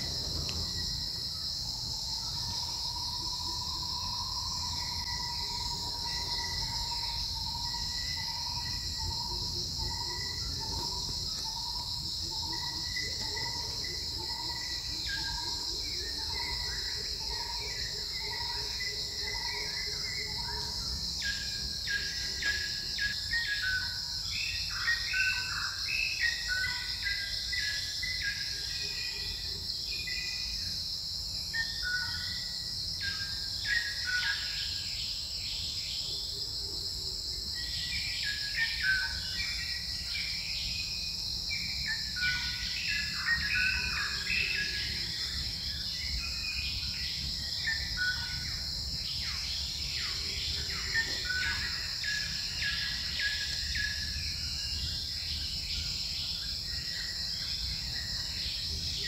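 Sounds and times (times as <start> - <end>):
high-pitched insect drone: 0.0 - 59.0.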